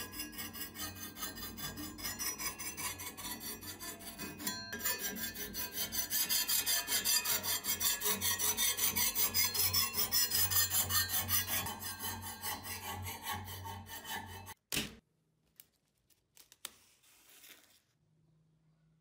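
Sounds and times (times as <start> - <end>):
abrasive stick rubbing steel blade: 0.0 - 14.6.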